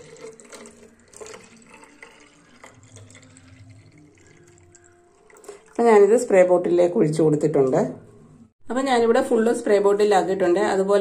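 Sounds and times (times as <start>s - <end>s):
liquid pouring into bottle: 0.0s - 6.0s.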